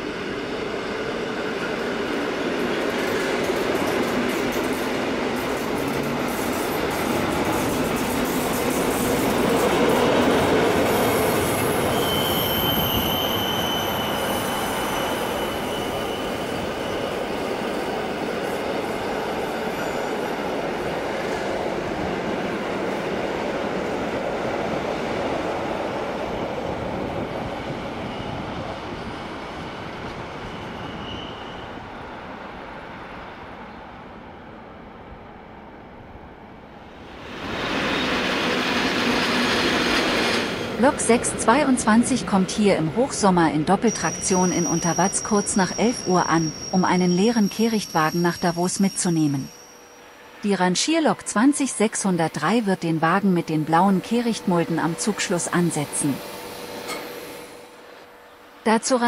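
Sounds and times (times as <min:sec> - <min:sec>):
train wheels rumbling on rails: 0:00.0 - 0:32.1, 0:37.1 - 0:49.4
high wheel squeal: 0:10.9 - 0:17.8, 0:19.3 - 0:20.4, 0:30.6 - 0:31.8, 0:43.8 - 0:50.4.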